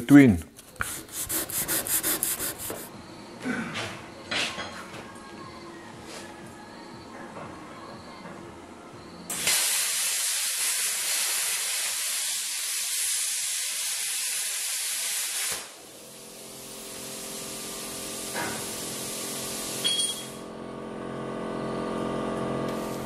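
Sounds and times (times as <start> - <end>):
compressed air hissing: 9.3 - 19.8.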